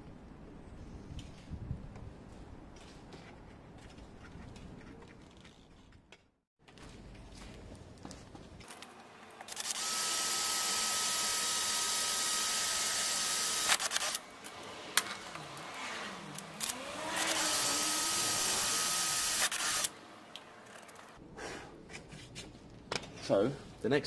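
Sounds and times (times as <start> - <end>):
cordless drill boring through plastic: 9.5 - 14.2, 16.6 - 19.9.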